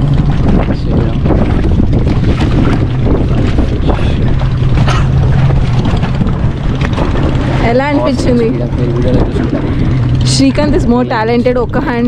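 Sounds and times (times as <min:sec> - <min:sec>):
speedboat engine running: 0:00.0 - 0:12.0
wind buffeting on microphone: 0:00.0 - 0:12.0.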